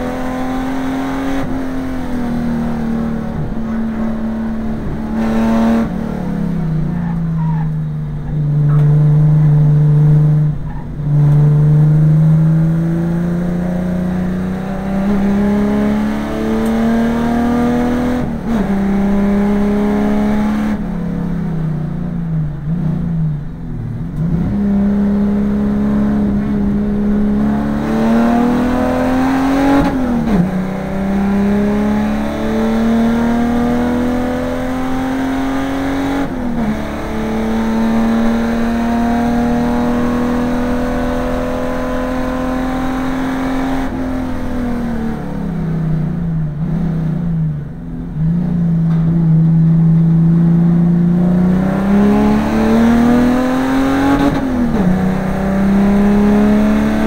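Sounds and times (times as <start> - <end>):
race car engine revving: 0.0 - 57.0.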